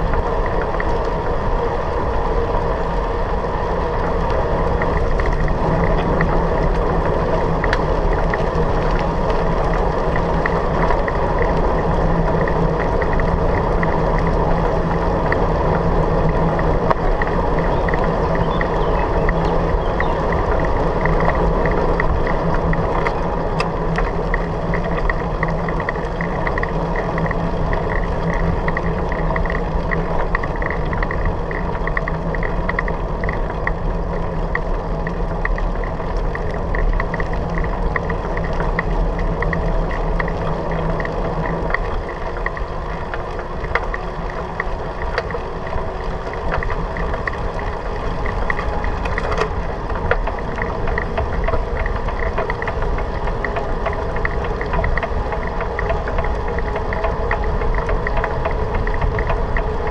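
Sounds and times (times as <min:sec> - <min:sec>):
bike rattling: 0:00.0 - 0:59.9
tyres rolling over gravel: 0:00.0 - 0:59.9
wind on camera: 0:00.0 - 0:59.9.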